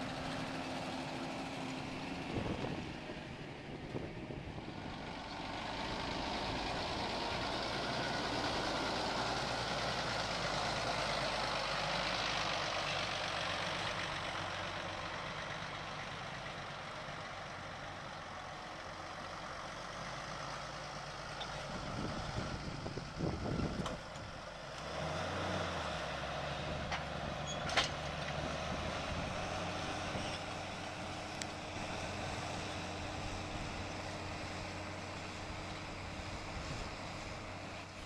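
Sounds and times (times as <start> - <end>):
tractor engine under load: 0.0 - 38.0.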